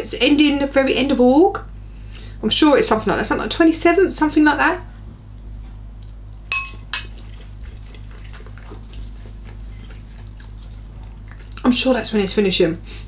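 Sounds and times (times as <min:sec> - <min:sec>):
fork clinking on ceramic bowl: 0:06.5 - 0:07.2
faint chewing: 0:07.1 - 0:11.8.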